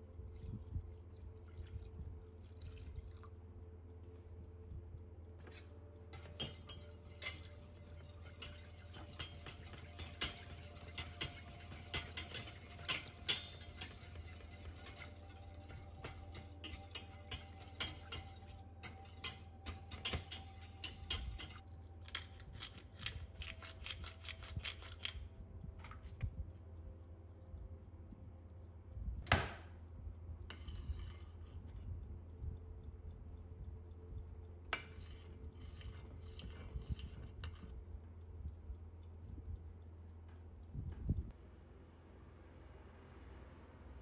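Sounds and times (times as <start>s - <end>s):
steady low hum: 0.0s - 44.0s
metal whisk scraping a pot: 5.4s - 25.2s, 30.5s - 31.8s, 34.7s - 37.8s.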